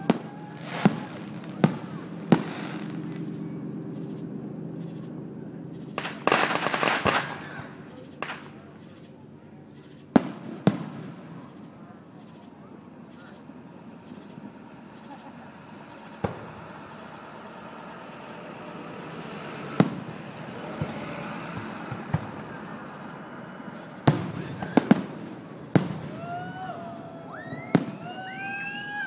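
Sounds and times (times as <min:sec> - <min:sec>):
fireworks bangs: 0:00.0 - 0:29.0
fireworks whistles: 0:00.0 - 0:29.0.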